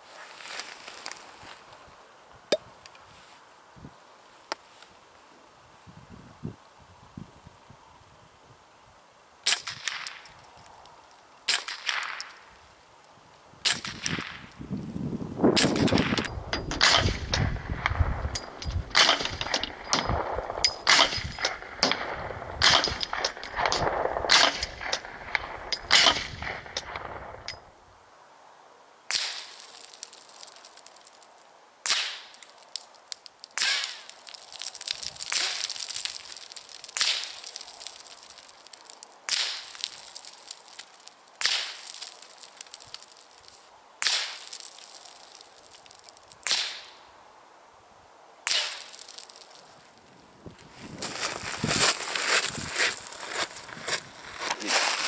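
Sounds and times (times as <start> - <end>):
rifle shots cracking: 18.9 - 27.4.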